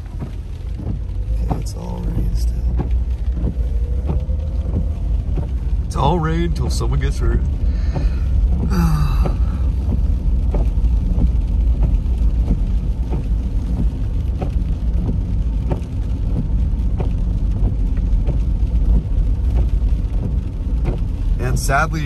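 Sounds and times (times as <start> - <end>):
tyres on wet road: 0.0 - 22.0.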